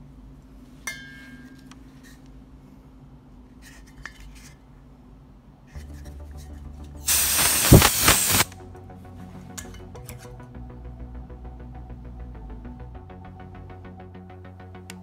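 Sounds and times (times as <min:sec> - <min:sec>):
low hum: 0:01.3 - 0:15.0.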